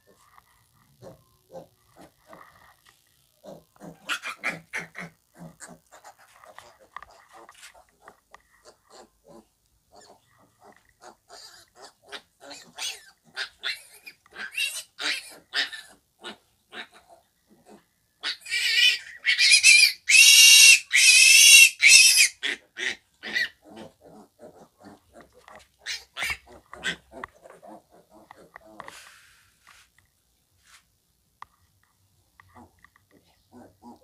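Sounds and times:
piglet grunting: 0.8 - 2.8, 3.4 - 29.1, 32.6 - 34.0
piglet squealing loudly: 3.9 - 5.2, 11.4 - 17.0, 18.2 - 23.9, 25.8 - 27.2.

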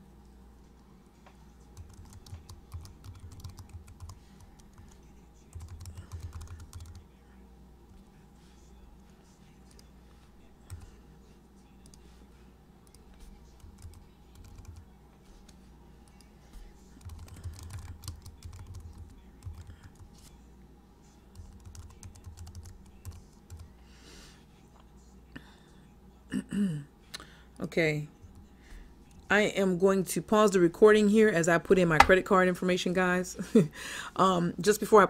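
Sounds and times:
typing on keyboard: 1.8 - 7.0, 13.6 - 14.8, 17.0 - 20.1, 21.4 - 23.7.

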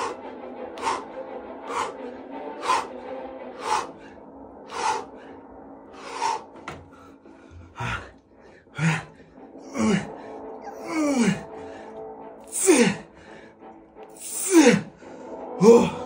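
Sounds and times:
man breathing out hard: 0.0 - 10.4
faint background music: 0.0 - 16.0.

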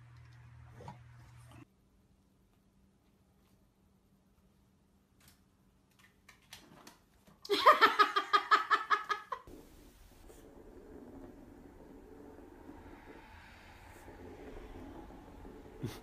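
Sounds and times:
person giggling: 7.5 - 9.5.

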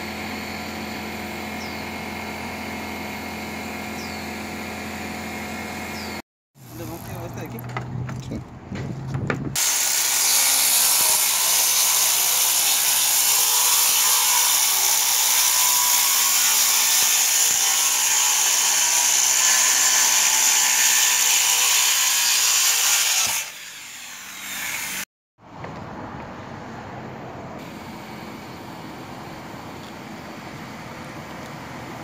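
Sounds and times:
circular saw cutting wood: 0.0 - 7.6, 9.6 - 25.1.

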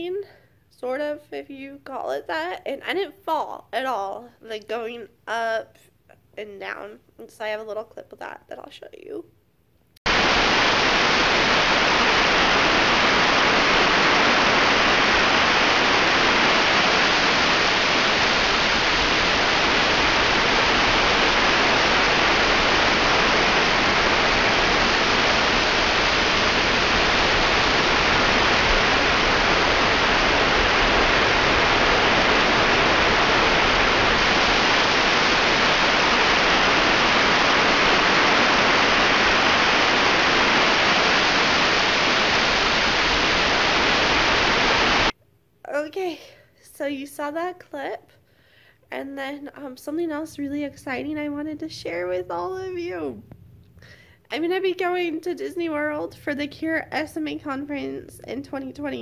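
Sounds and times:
waterfall rushing: 10.1 - 45.1.

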